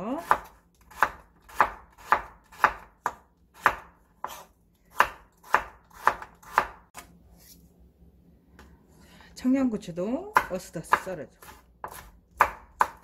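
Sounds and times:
knife slicing carrot: 0.0 - 7.6, 10.3 - 13.0.

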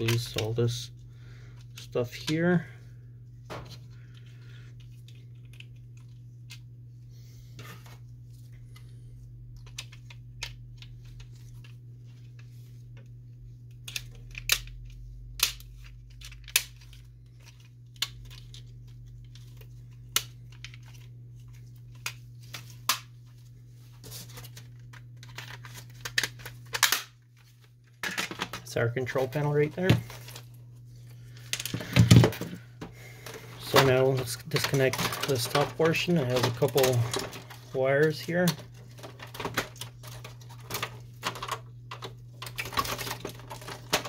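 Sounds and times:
steady low hum: 0.0 - 44.0
plastic parts clicking and tapping: 9.6 - 11.7, 13.7 - 21.1, 31.4 - 44.0
plastic rattling: 33.2 - 44.0.

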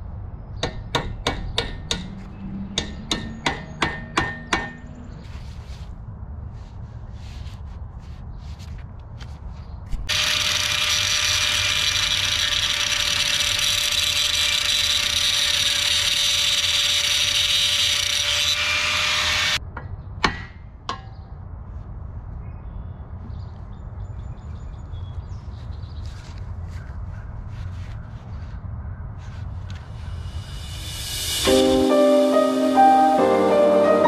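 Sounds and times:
angle grinder grinding metal: 10.1 - 19.6.

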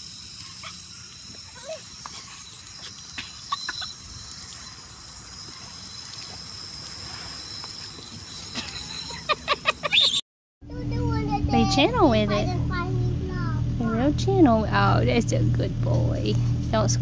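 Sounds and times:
hose spraying water: 0.0 - 10.2
short high squeaks: 0.0 - 10.2.

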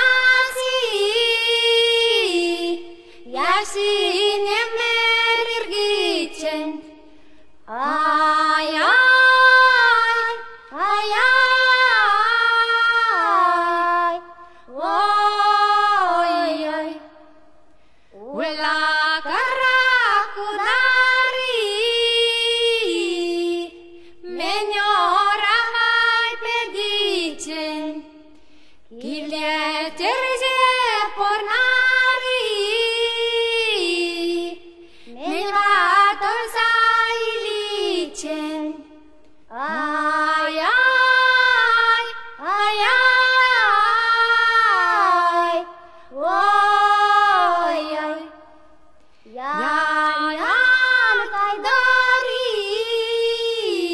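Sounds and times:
high voice singing slowly: 39.5 - 48.4, 49.2 - 53.9.

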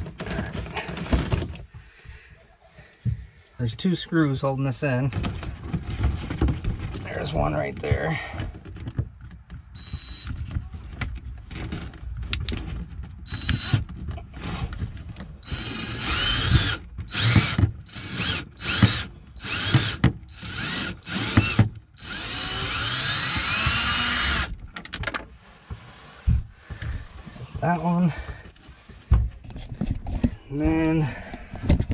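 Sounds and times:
cordless drill motor whine: 9.8 - 10.2, 13.3 - 13.8, 15.4 - 24.5.

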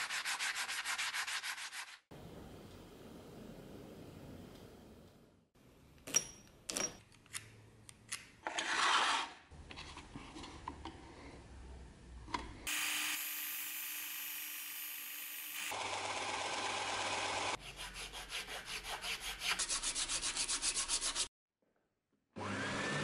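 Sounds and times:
electric disc sander grinding: 12.7 - 17.6.

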